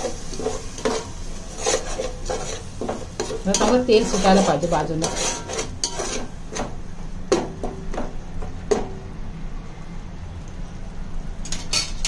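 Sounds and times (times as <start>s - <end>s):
metal spoon clinking on pan: 3.2s - 6.3s.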